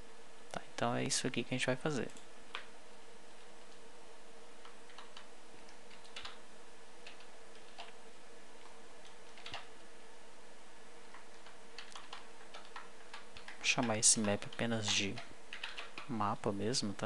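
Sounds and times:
faint hiss and hum: 0.0 - 17.0
computer mouse clicks: 2.0 - 2.7, 4.6 - 6.4, 7.0 - 8.0, 8.6 - 9.7, 11.1 - 16.1
keyboard key presses: 4.6 - 6.4, 8.6 - 9.7, 11.1 - 16.1.

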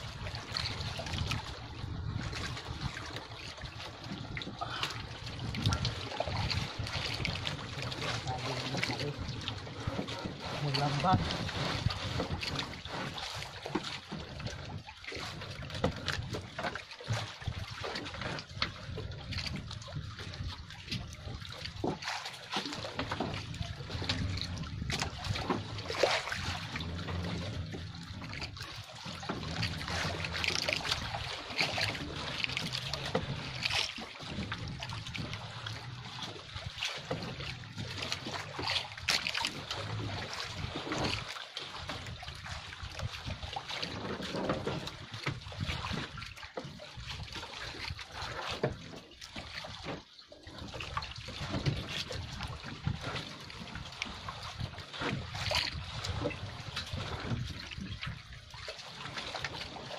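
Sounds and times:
water splashing and dripping: 0.0 - 59.9
low steady rumble: 22.7 - 41.1.

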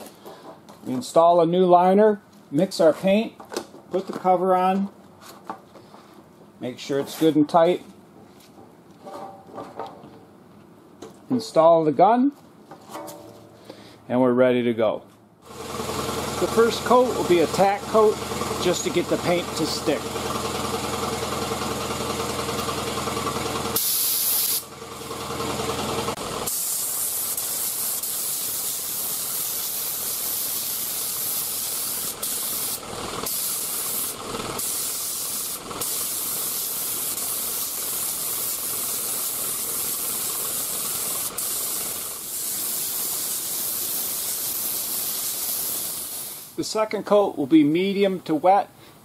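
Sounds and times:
spray gun hissing: 23.8 - 24.7, 26.4 - 46.6.

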